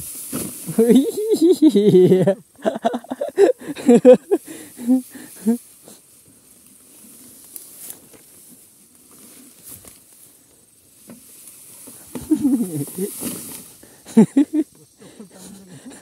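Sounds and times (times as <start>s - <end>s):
faint hiss: 0.0s - 16.0s.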